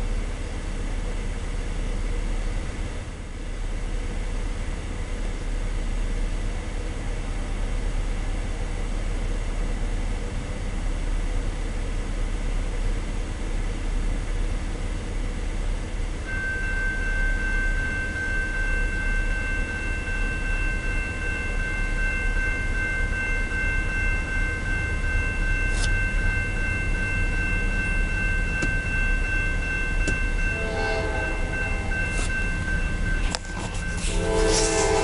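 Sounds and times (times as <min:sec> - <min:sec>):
railroad crossing bell ringing: 0:14.6 - 0:35.0
low rumble: 0:18.7 - 0:35.0
short horn blast: 0:30.5 - 0:32.4, 0:33.2 - 0:35.0.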